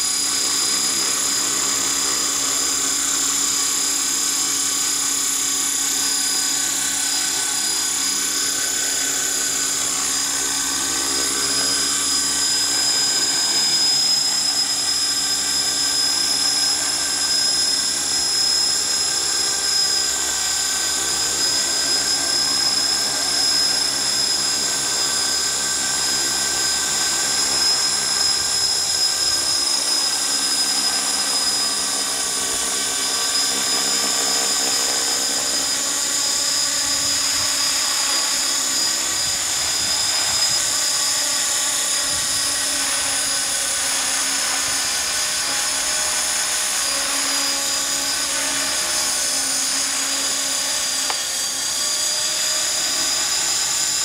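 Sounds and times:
rc helicopter motor whine: 0:00.0 - 0:54.0.

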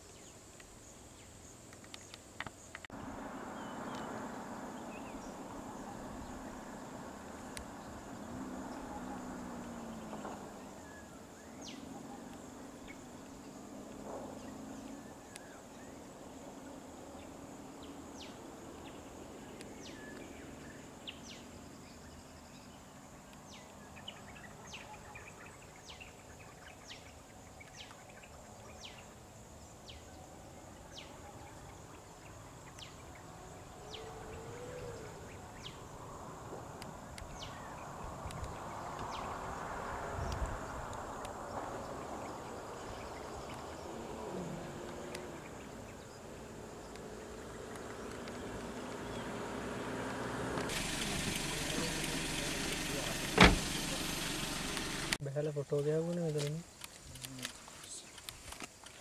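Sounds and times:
vehicle engine idling: 0:02.9 - 0:22.6, 0:33.0 - 0:55.2.

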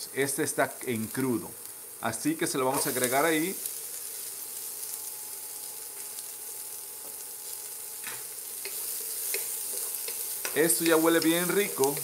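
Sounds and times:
vegetables sizzling in a frying pan: 0:00.0 - 0:12.0
wooden spoon scraping a pan: 0:08.5 - 0:12.0.

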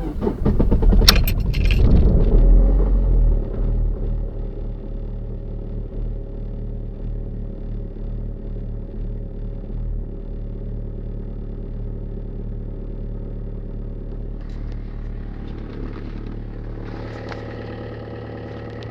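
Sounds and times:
diesel engine idling: 0:00.0 - 0:18.9
light clicks and rattles: 0:00.4 - 0:02.4.

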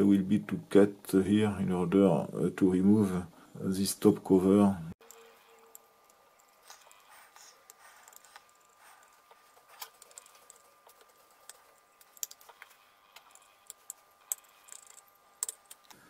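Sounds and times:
faint clicks of metal parts: 0:05.0 - 0:16.0.

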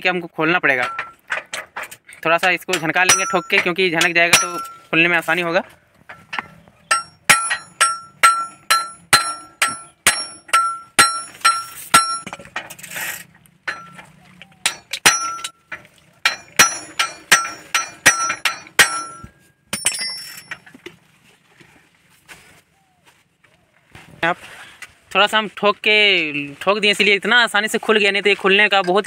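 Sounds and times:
hammer clanging on metal: 0:00.7 - 0:05.0, 0:05.6 - 0:12.8, 0:13.6 - 0:20.7.

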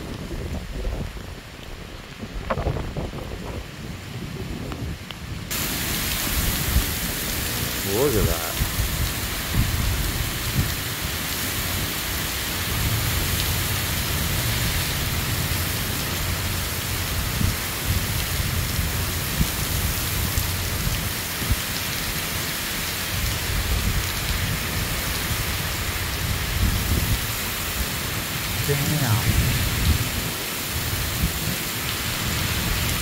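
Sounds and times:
gusting wind: 0:00.0 - 0:33.0
torrential rain: 0:00.0 - 0:33.0
low thunder rumble: 0:28.0 - 0:31.6.

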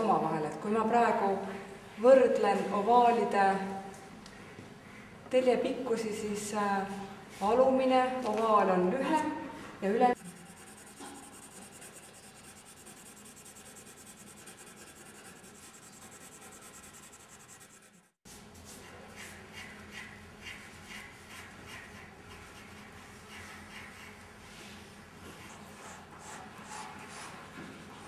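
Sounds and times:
pencil scratching on paper: 0:10.2 - 0:18.2.

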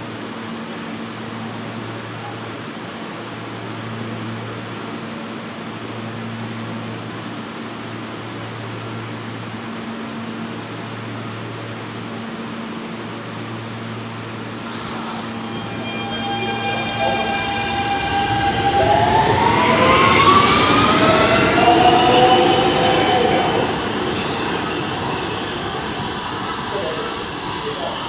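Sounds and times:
low drone: 0:13.8 - 0:28.0.

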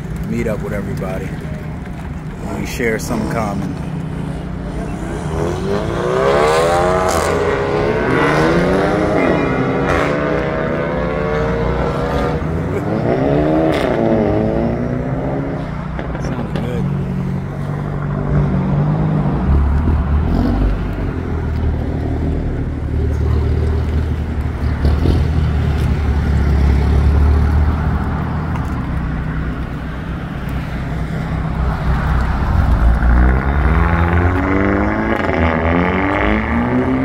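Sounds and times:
engine revving up: 0:04.7 - 0:15.6, 0:32.5 - 0:37.0.

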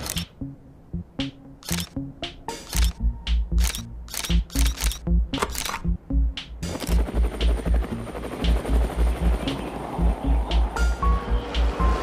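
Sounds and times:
music with heavy bass beat: 0:02.2 - 0:03.6, 0:05.1 - 0:12.0.

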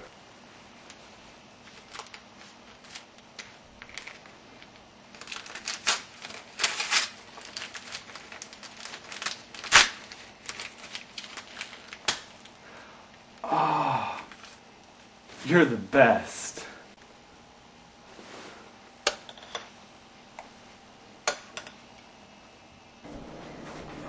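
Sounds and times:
gift wrapping crinkling and tearing: 0:01.6 - 0:12.6.

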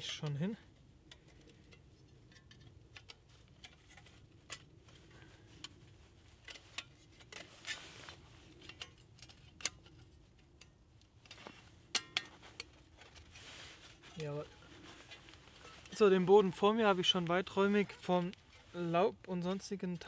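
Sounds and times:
metal panels clicking and clinking: 0:08.5 - 0:13.3.

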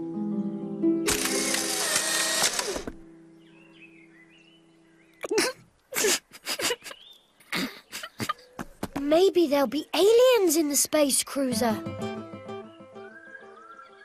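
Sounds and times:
mysterious musical chord: 0:11.5 - 0:14.0.

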